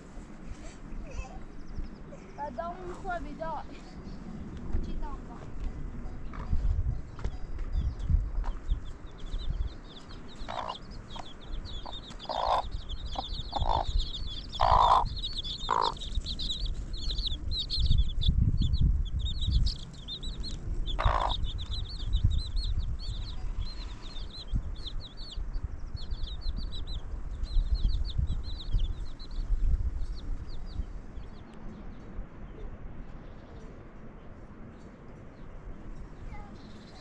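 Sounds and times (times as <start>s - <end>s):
chicks peeping: 6.0s - 31.5s
hen clucking: 10.1s - 17.8s, 20.9s - 22.0s.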